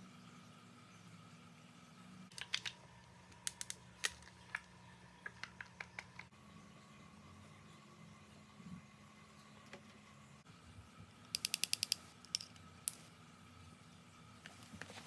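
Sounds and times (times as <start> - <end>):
faint room hum: 0.0 - 15.0
plastic compacts clicking: 2.3 - 4.7.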